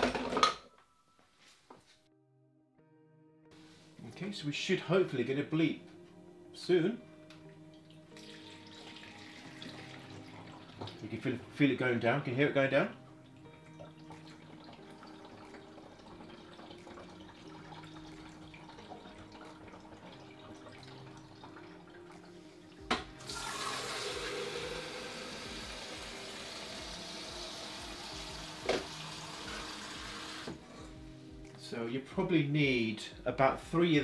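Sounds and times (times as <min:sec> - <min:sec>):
water trickling into tank: 0:13.0 - 0:29.4
tap running into jug: 0:22.8 - 0:29.7.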